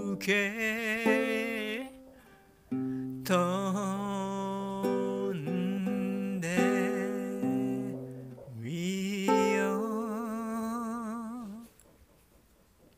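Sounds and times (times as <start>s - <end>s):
strummed guitar chords: 0.0s - 11.3s
person singing: 0.0s - 11.8s.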